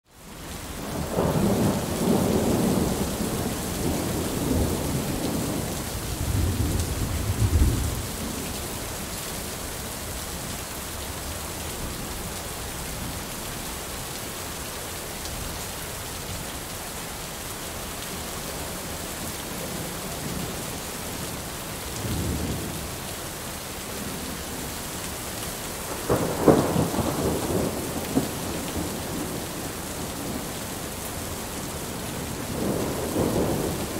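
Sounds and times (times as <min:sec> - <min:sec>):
heavy rain falling: 0:00.1 - 0:33.9
rolling thunder: 0:00.9 - 0:08.5, 0:25.9 - 0:30.5, 0:31.9 - 0:33.9.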